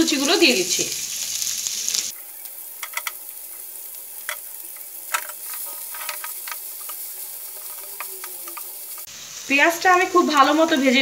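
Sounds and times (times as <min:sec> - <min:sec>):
onions sizzling in oil: 0:00.0 - 0:11.0
spatula clicking on pan: 0:02.8 - 0:03.3, 0:04.2 - 0:09.1.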